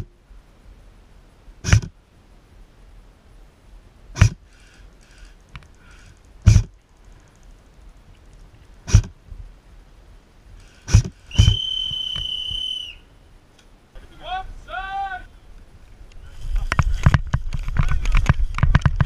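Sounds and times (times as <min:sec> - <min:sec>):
airsoft gun shots: 0:01.6 - 0:01.9, 0:06.5 - 0:06.7, 0:10.8 - 0:11.7.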